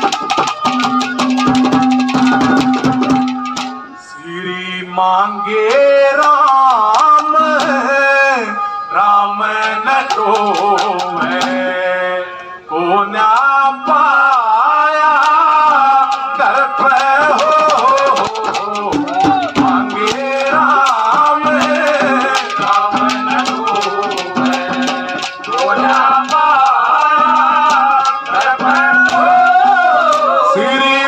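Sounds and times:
quick dense percussion: 0.0s - 3.9s, 5.7s - 7.9s, 9.6s - 11.8s, 15.2s - 30.6s
wavering folk melody: 0.0s - 31.0s.

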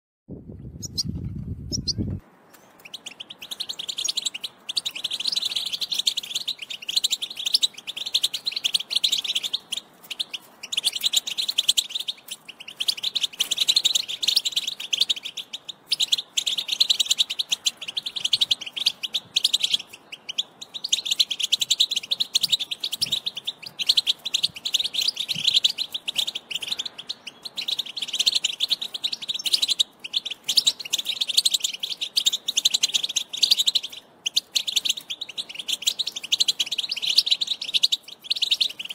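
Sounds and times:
bird twittering: 0.6s - 38.9s.

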